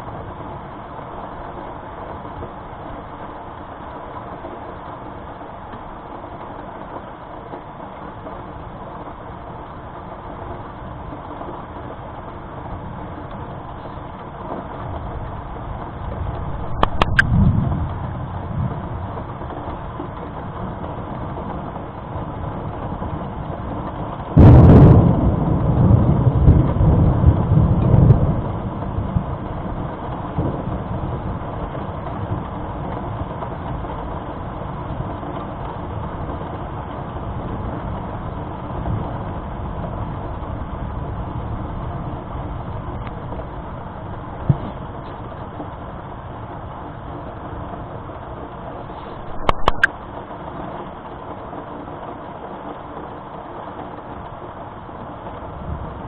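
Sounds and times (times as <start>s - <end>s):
thunder rumbling: 12.4s - 33.9s, 37.2s - 47.1s, 47.9s - 50.8s
loud thunderclap: 16.6s - 19.0s, 24.4s - 29.5s.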